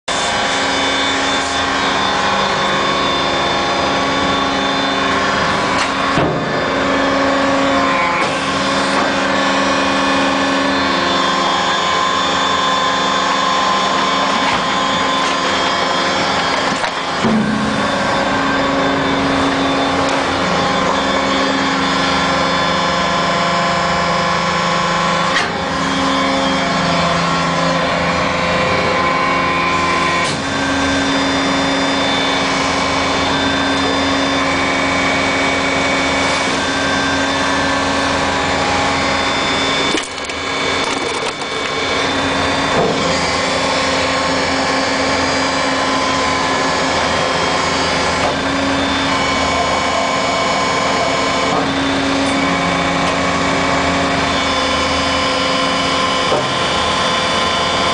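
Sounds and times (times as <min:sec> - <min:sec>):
hydraulic machine whine: 0:00.1 - 0:57.9.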